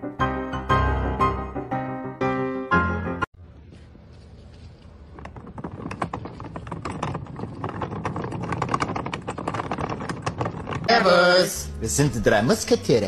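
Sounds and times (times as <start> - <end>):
dolly casters clattering on tiles: 5.1 - 11.6.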